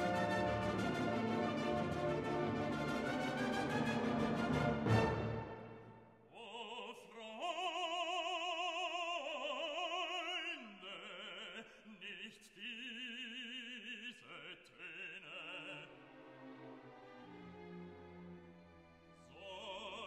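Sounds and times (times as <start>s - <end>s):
opera singer with vibrato: 6.3s - 16.0s, 19.3s - 20.0s.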